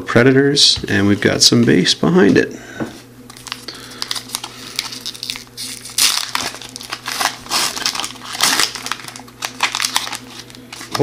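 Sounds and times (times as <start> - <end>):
foil wrapper crinkling and tearing: 3.3 - 11.0.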